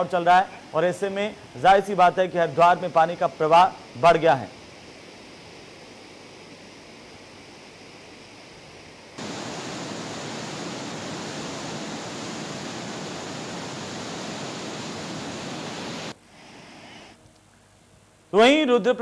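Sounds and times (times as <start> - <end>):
fast-flowing river rushing: 9.2 - 16.1.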